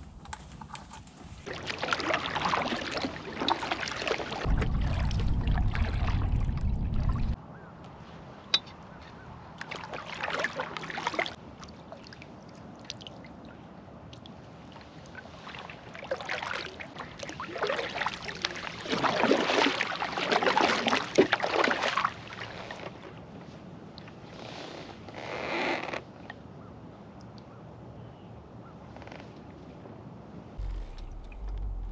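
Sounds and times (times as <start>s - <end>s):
paddle strokes splashing water: 0.4s - 7.4s, 9.6s - 13.4s, 14.5s - 23.2s, 30.6s - 31.9s.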